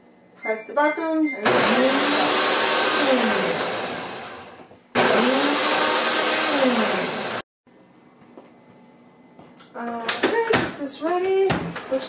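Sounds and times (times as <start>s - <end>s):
blender motor running: 1.4s - 7.4s.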